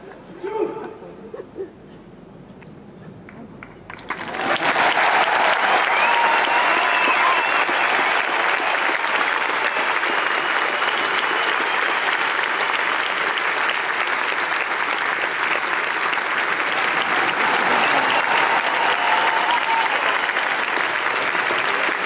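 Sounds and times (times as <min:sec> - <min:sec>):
audience applauding: 0:03.3 - 0:22.0.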